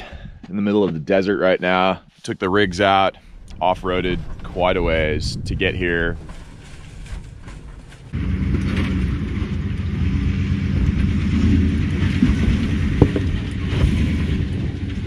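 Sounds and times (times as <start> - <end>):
van engine driving off-road: 3.6 - 15.0.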